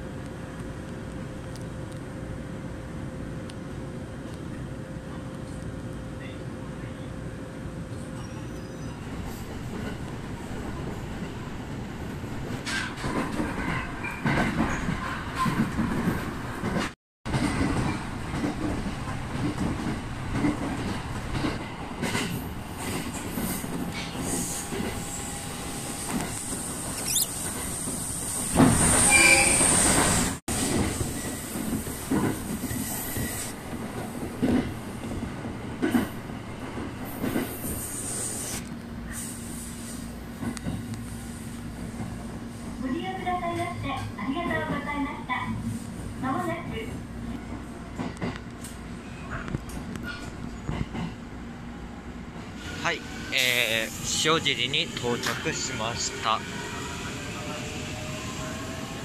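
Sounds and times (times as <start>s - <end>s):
train rumble: 0.0s - 59.0s
high squeal of wheel flanges: 8.1s - 9.0s, 26.8s - 28.2s, 28.8s - 30.0s.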